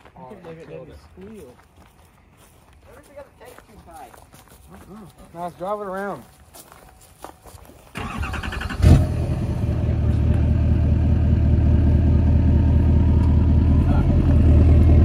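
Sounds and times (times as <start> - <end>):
truck engine starting and idling: 7.9 - 15.0.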